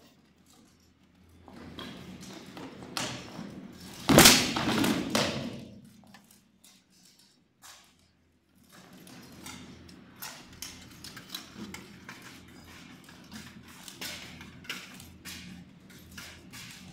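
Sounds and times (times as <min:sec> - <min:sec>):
swords hitting shields: 0:04.1 - 0:05.8.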